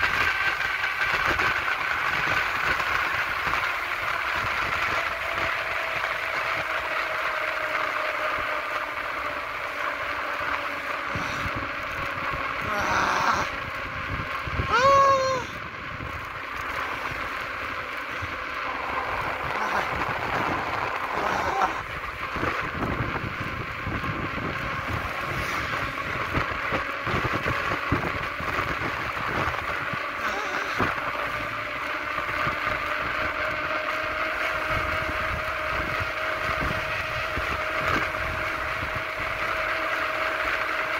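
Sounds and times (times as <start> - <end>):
constant hum: 0.0 - 40.9
wheels rolling on asphalt: 0.0 - 40.9
voice-like call: 12.6 - 13.5, 14.7 - 15.6, 30.2 - 30.9
wind rush: 18.2 - 31.5.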